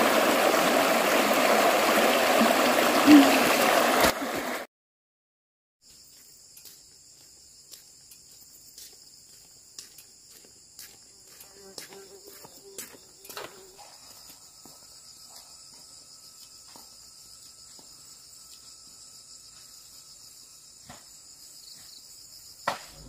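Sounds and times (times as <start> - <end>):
insects chirring: 5.8 - 23.0.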